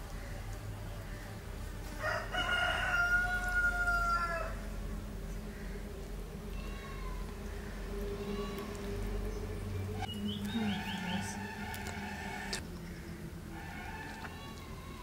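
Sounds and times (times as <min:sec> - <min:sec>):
rooster crowing: 0:02.0 - 0:04.6.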